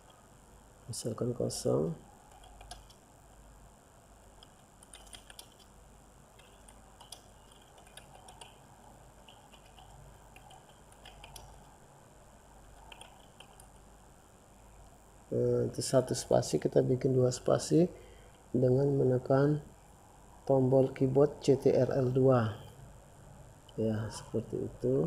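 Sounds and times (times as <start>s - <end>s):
low steady hiss: 0.0s - 25.0s
computer keyboard typing: 2.2s - 3.0s, 4.4s - 5.7s, 6.4s - 11.8s, 12.6s - 13.8s.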